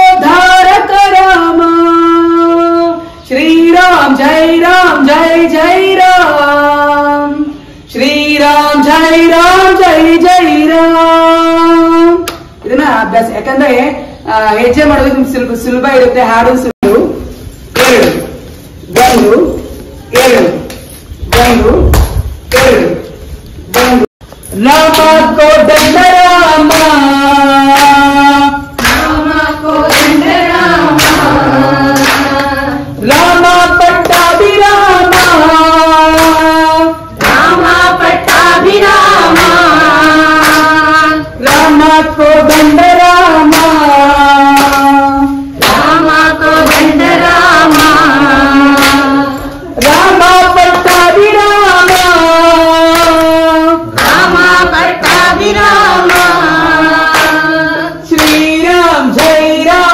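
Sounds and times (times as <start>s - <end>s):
devotional song singing: 0.0s - 59.9s
regular beat: 21.3s - 59.9s.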